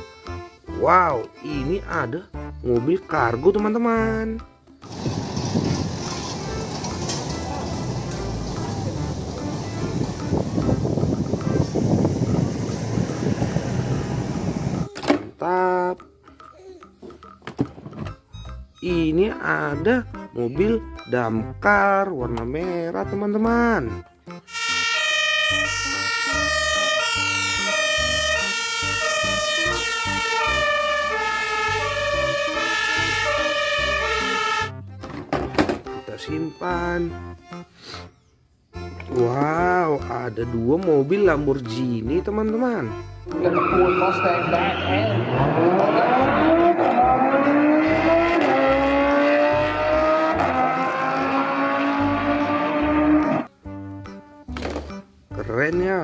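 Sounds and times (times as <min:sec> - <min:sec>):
car engines accelerating hard: 0:04.9 - 0:14.8, 0:43.4 - 0:53.5
fire engine two-tone siren: 0:24.5 - 0:34.8, 0:43.5 - 0:53.5.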